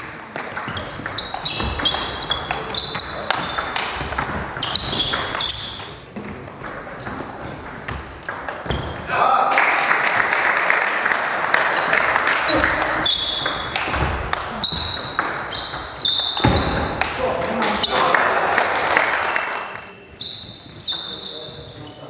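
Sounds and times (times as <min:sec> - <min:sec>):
crowd noise: 0:00.0 - 0:22.0
shoes squeaking on wooden floor: 0:00.6 - 0:09.1, 0:11.8 - 0:17.1, 0:19.8 - 0:22.0.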